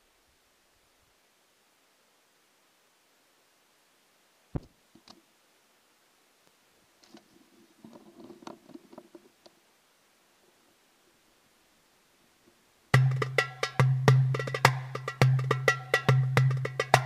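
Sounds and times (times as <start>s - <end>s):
faint knocks and rattles: 7.0s - 9.6s.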